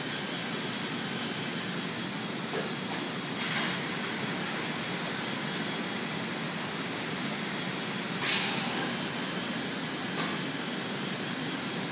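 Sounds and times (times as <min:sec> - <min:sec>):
factory machinery noise: 0:00.0 - 0:11.9.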